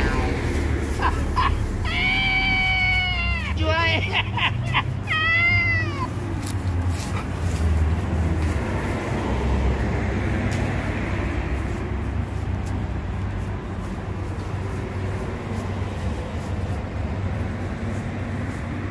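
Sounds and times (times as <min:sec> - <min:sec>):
steady low rumble: 0:00.0 - 0:05.1, 0:06.1 - 0:18.9
dog whining cry: 0:01.8 - 0:03.5.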